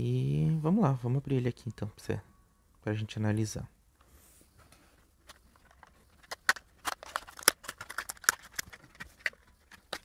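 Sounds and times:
scissors cutting plastic: 6.3s - 10.0s.

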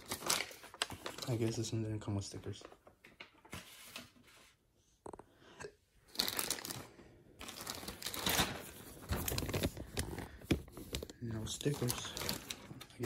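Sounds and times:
plastic packaging crinkling: 0.0s - 1.8s, 6.1s - 13.0s.

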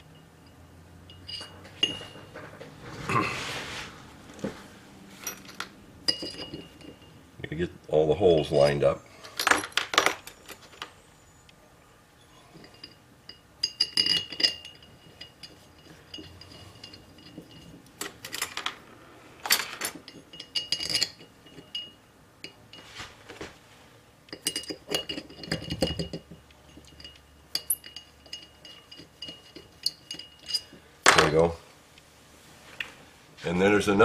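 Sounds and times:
small metal parts clinking: 0.1s - 2.6s, 5.2s - 7.2s, 8.4s - 10.9s, 12.5s - 22.9s, 24.3s - 31.4s.

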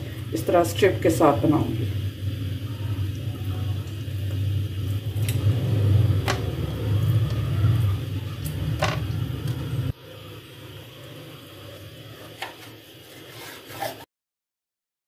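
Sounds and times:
steady low rumble: 0.0s - 11.7s.

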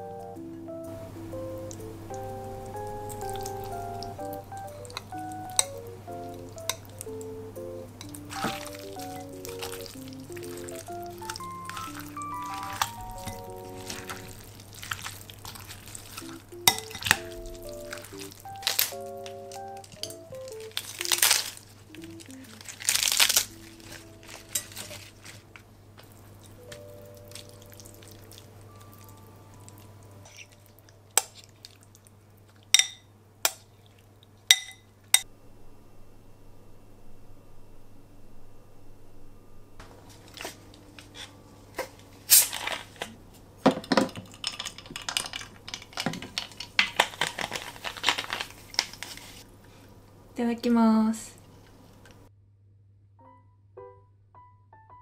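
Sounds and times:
soft background music: 0.0s - 14.5s, 15.5s - 31.4s, 53.2s - 55.0s
ice crackling: 1.4s - 28.5s, 44.2s - 49.5s
lettuce crinkling and tearing: 8.0s - 29.2s, 40.0s - 43.2s, 44.1s - 49.5s.

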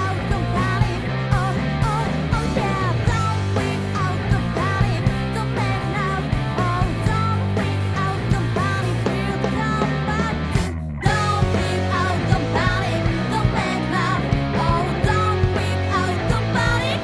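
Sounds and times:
drums: 0.0s - 17.0s
electric bass: 0.0s - 17.0s
electric guitar: 0.0s - 17.0s
person singing: 0.0s - 17.0s.

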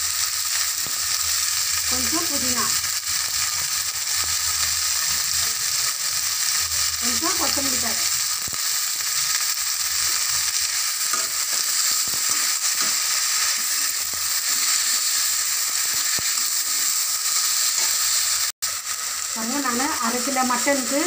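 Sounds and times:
vegetables sizzling in oil: 0.0s - 21.0s
spatula scraping pan: 10.0s - 18.2s.

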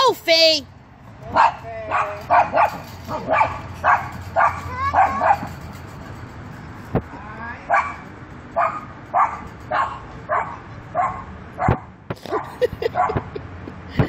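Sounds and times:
small dog barking: 1.4s - 5.5s, 8.6s - 11.8s.

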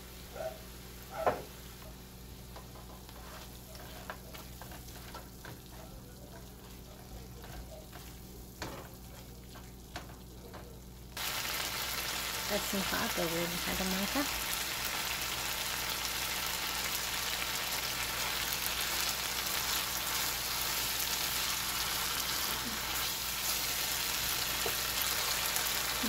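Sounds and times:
food sizzling in a pan: 0.0s - 26.0s
spatula scraping a frying pan: 2.5s - 10.1s.

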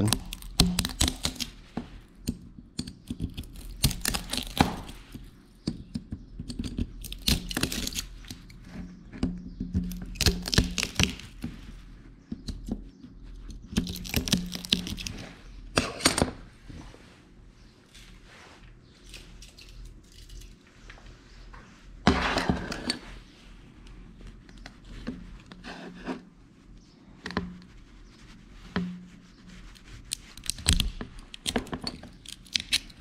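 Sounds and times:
plastic cracking and snapping: 0.0s - 1.5s, 2.3s - 5.0s, 6.4s - 8.5s, 9.8s - 11.4s, 13.5s - 15.2s, 30.1s - 33.0s.

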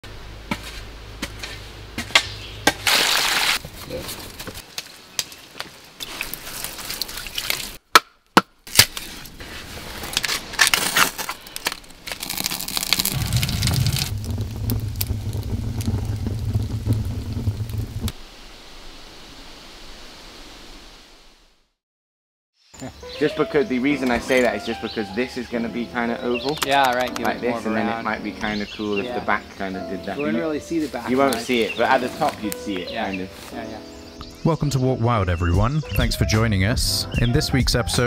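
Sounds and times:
shovel working clay soil: 0.5s - 4.6s
wood fire crackling: 0.8s - 7.8s, 8.7s - 18.2s, 25.5s - 33.7s
low steady rumble: 13.1s - 18.1s.

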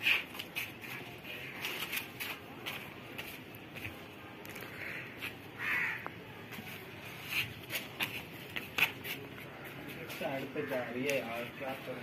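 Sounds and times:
crows cawing: 4.7s - 6.2s, 10.4s - 11.3s.

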